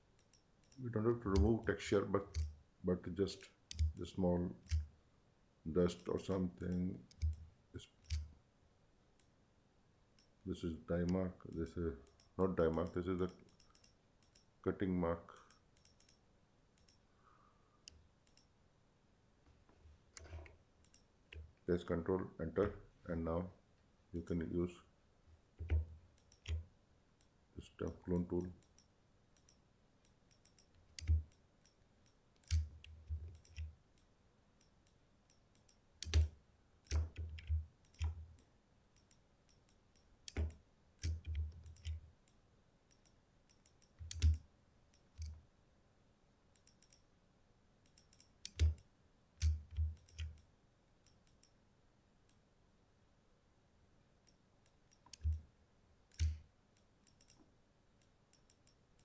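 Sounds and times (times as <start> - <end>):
computer mouse clicking: 0.2 - 2.6, 3.3 - 4.9, 5.9 - 8.3, 11.0 - 14.5, 15.3 - 16.2, 16.8 - 17.0, 17.8 - 18.5, 20.2 - 21.5, 25.6 - 26.6, 27.2 - 42.0, 42.9 - 45.4, 46.6 - 47.0, 47.8 - 51.6, 54.2 - 55.4, 56.1 - 57.4, 58.0 - 59.0.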